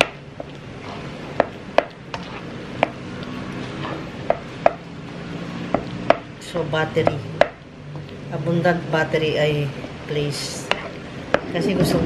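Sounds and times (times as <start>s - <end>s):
stirring mashed potatoes: 0.0s - 8.2s.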